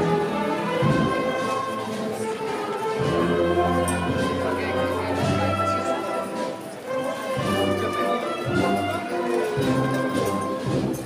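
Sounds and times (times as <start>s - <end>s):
street band playing: 0.0s - 11.0s.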